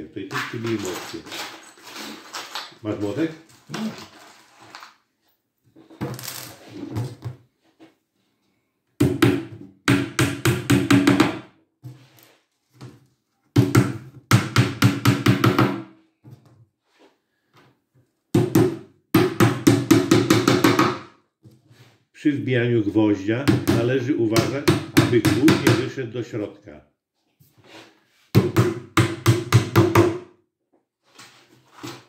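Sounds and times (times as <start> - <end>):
hammer tapping nails: 9.0 - 11.4.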